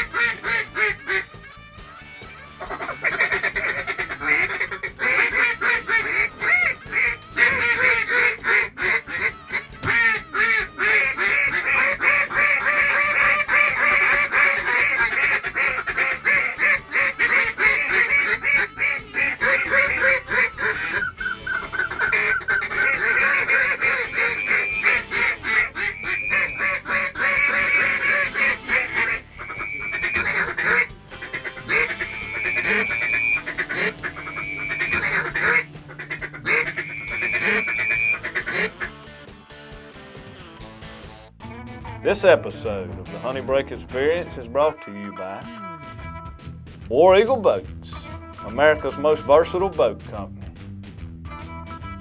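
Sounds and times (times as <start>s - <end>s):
waterfowl quacking and honking: 0.0s - 1.5s, 2.4s - 39.0s.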